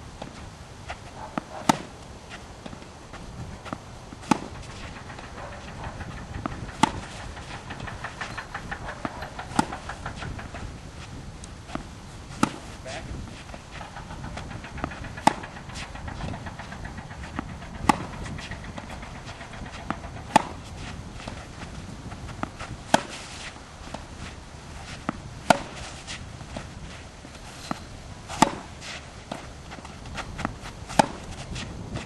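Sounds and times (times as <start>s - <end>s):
tennis balls struck with rackets: 0.2s - 32.0s
faint knocks: 4.2s - 10.8s.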